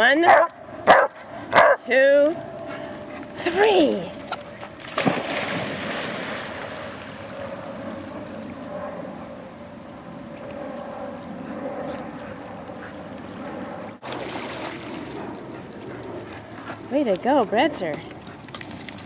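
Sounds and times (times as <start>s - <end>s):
dog splashing in water: 4.2s - 7.2s, 14.0s - 16.4s.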